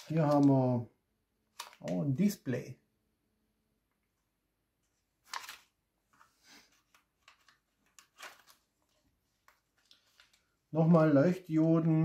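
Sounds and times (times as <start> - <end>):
plastic bag crinkling: 5.2 - 5.7.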